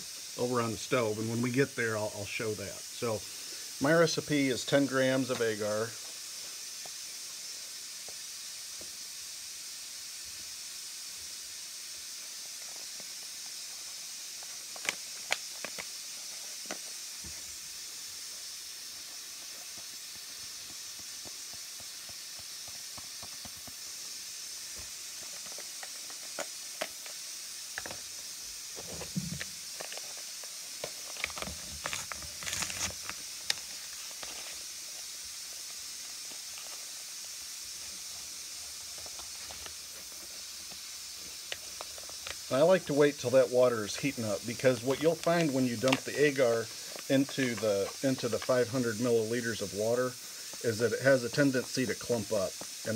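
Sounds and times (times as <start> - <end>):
steady background hiss: 0.0 - 52.9
paper pouch clicks and rustles: 14.4 - 17.4, 28.8 - 34.7.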